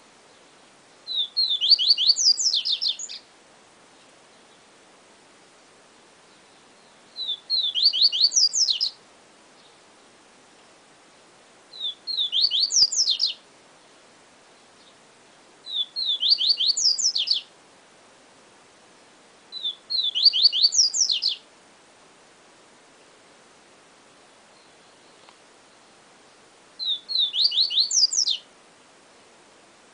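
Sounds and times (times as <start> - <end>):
bird singing sharp whistles: 1.1 - 3.2, 7.2 - 9.0, 11.8 - 13.4, 15.7 - 17.5, 19.5 - 21.4, 26.8 - 28.4.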